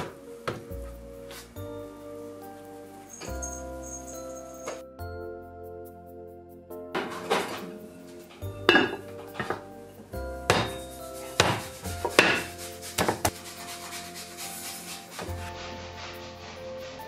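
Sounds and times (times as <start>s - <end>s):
gentle background music: 0.0s - 17.0s
ceramic plate knocking on metal pot: 8.7s - 9.6s.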